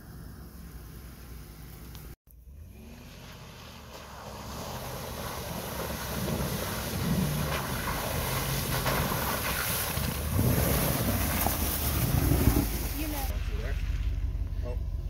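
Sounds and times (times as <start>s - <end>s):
pickup truck engine running: 0.0s - 15.0s
tyres splashing in slush: 3.1s - 14.2s.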